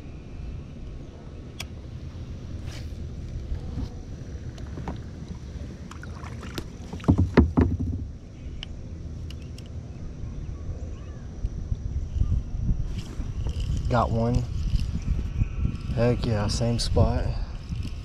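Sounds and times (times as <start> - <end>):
wind rumble on microphone: 0.0 - 9.1, 9.8 - 18.0
loud knocks and thumps: 6.9 - 8.1.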